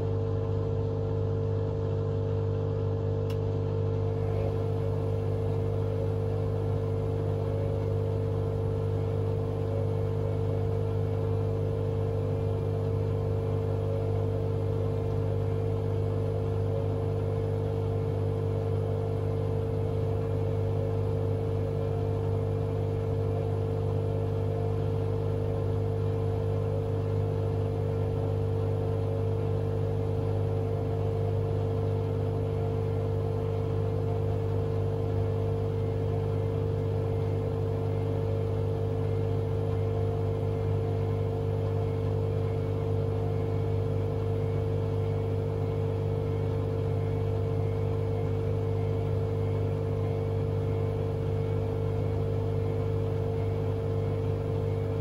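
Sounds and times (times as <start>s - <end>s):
washing machine drum spinning: 26.4s - 55.0s.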